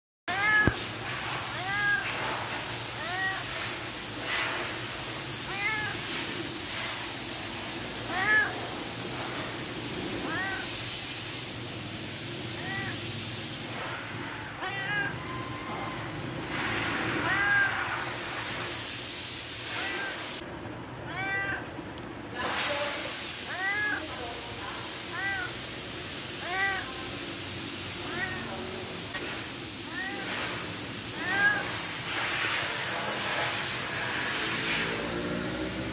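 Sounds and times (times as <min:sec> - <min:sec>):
cat meowing: 0:00.3 - 0:03.7, 0:05.4 - 0:06.5, 0:08.0 - 0:08.8, 0:10.1 - 0:10.8, 0:12.6 - 0:13.0, 0:14.3 - 0:18.0, 0:21.1 - 0:21.7, 0:23.4 - 0:24.3, 0:25.0 - 0:25.7, 0:26.4 - 0:27.0, 0:28.0 - 0:28.8, 0:29.9 - 0:32.9.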